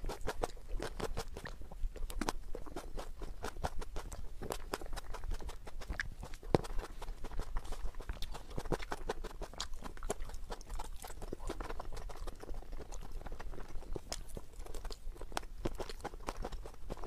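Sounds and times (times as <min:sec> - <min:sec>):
chewing tomatoes: 0:00.0 - 0:17.0.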